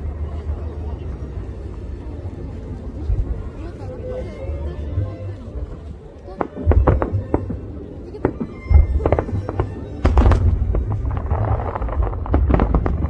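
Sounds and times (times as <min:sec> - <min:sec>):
fireworks bangs: 0:06.4 - 0:13.0
deep rumbling boom: 0:08.2 - 0:13.0.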